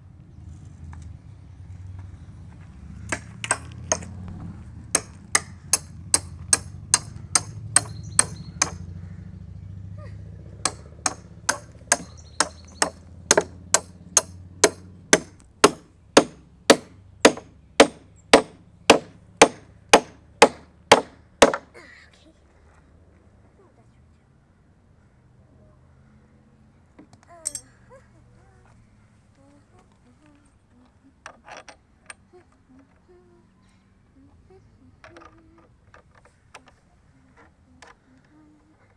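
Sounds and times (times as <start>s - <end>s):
hammer striking steel bolt: 10.7s - 21.6s.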